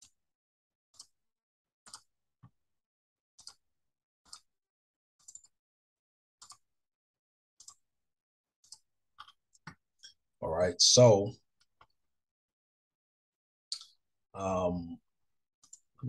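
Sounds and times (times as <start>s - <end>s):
computer mouse clicking: 1.9s - 2.1s, 3.4s - 3.6s, 4.3s - 4.5s, 5.2s - 5.5s, 6.4s - 6.6s, 7.6s - 7.8s.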